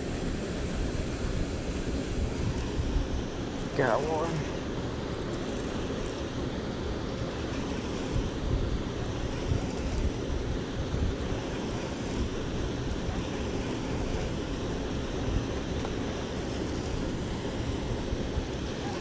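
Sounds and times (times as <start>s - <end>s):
steady outdoor rushing rumble: 0.0s - 19.0s.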